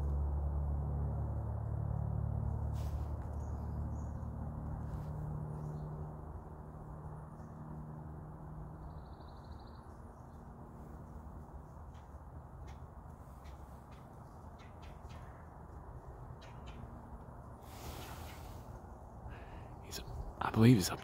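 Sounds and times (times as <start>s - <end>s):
low steady rumble: 0.0s - 21.0s
faint high bird chirps: 8.8s - 10.0s.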